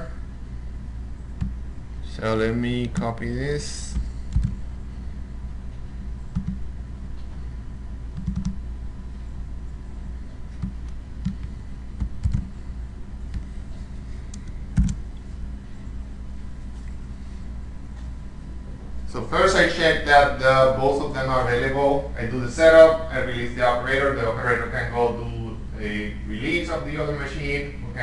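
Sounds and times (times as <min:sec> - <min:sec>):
steady low hum: 0:00.0 - 0:28.0
keyboard and mouse clicks: 0:03.9 - 0:04.6, 0:06.3 - 0:06.6, 0:08.2 - 0:08.6, 0:10.6 - 0:12.5, 0:14.3 - 0:15.0.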